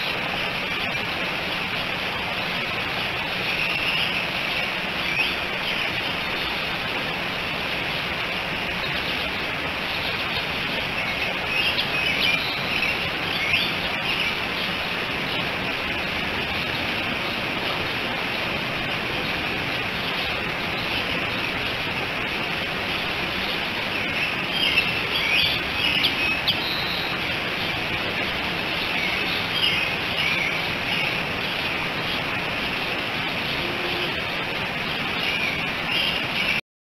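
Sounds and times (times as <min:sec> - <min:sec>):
outdoor hiss: 0:00.0 - 0:36.6
birds chirping: 0:23.0 - 0:32.3.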